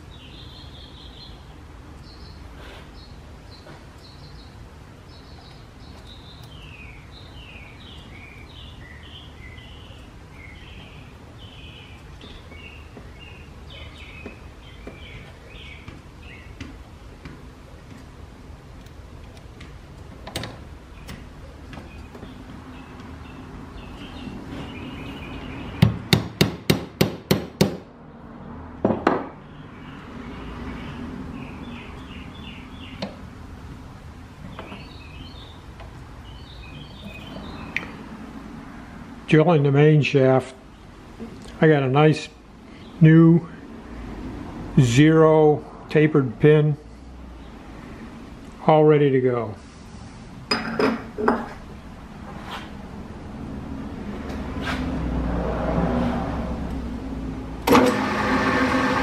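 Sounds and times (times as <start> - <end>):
birds chirping: 0.0 - 26.2, 29.3 - 43.8
hammer tapping on metal: 25.8 - 27.8.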